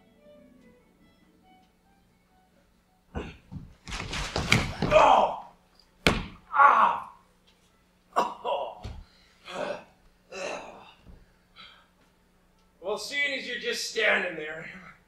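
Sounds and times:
man gasping and groaning: 9.4 - 11.0.

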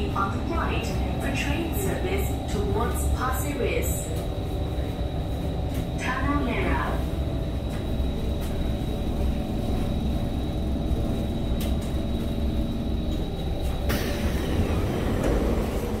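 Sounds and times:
train doors closing: 0.0 - 16.0
train humming at platform: 0.0 - 16.0.

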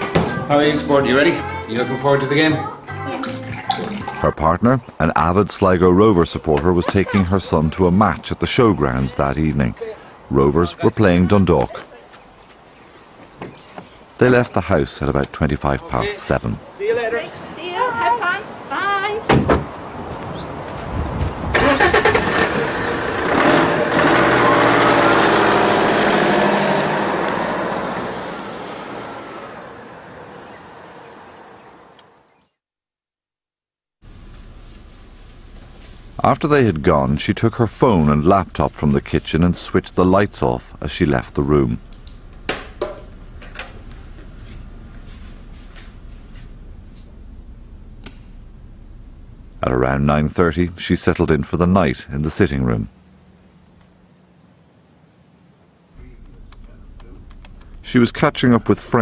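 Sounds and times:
car accelerating away: 21.5 - 32.2, 40.1 - 50.0, 56.0 - 59.0
low room hum: 34.1 - 59.0.

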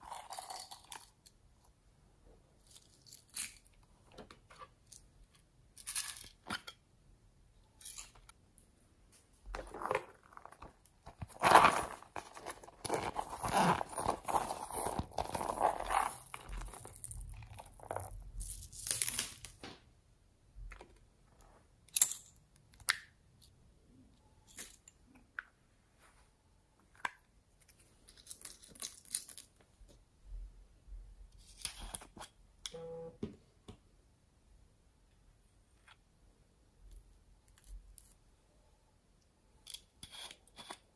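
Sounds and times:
pouch rustling open: 9.6 - 18.0.

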